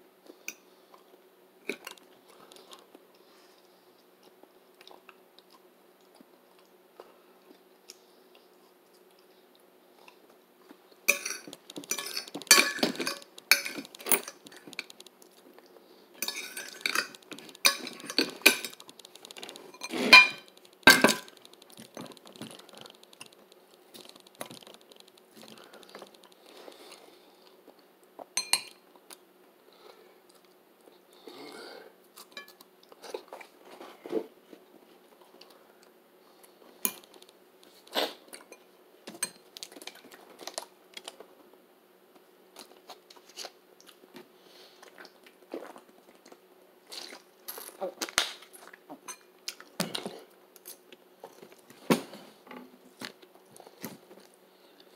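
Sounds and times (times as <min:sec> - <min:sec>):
chewing: 0:00.3 - 0:10.4, 0:11.2 - 0:29.2, 0:42.6 - 0:51.6
fork and plate clinking: 0:11.1 - 0:14.4, 0:16.2 - 0:18.8, 0:19.7 - 0:21.4.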